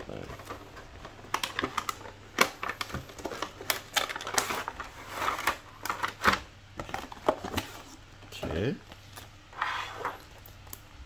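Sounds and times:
packaging rustling: 0.1s - 10.8s
cardboard sliding and scraping: 9.5s - 10.2s.

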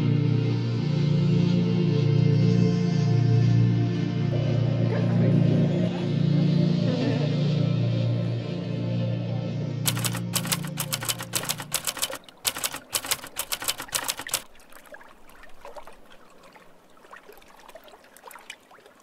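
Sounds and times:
typewriter keys clacking: 9.9s - 14.4s.

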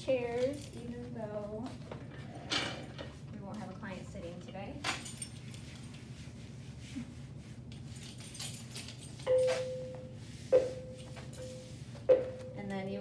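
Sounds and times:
wipe rustling on tabletop: 5.4s - 8.3s, 9.4s - 12.5s.

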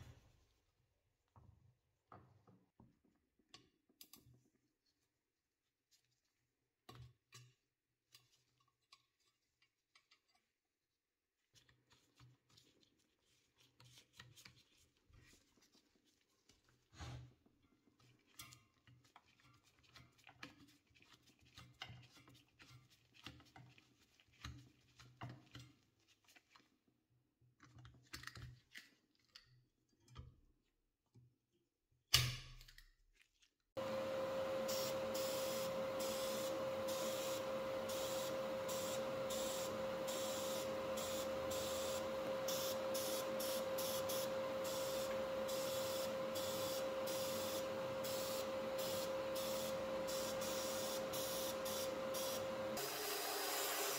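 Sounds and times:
spray gun hissing: 34.6s - 53.9s.

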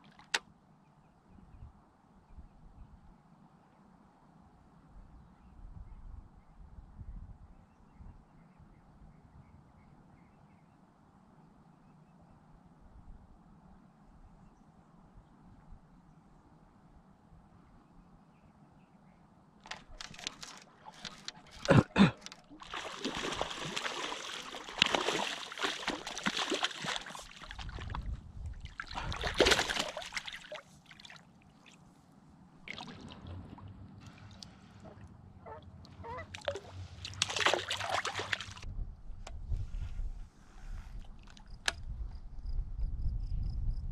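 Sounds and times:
water splashing and sloshing: 19.6s - 38.7s.

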